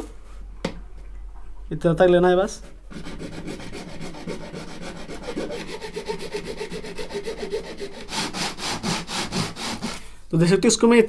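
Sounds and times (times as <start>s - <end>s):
hand tool rasping plastic pipe: 2.6s - 10.1s.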